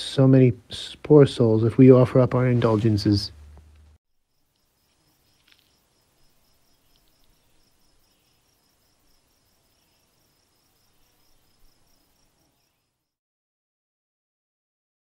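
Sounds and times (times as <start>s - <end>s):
low background hiss: 0.0s - 13.1s
insect chirping trill: 4.1s - 13.2s.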